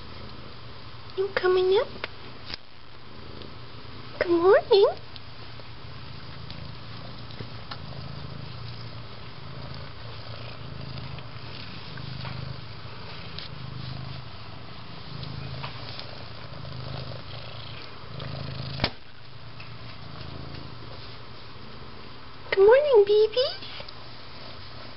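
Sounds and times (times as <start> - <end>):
cat purring: 0.0 - 22.6, 23.3 - 24.9
faint rustles: 5.0 - 22.1.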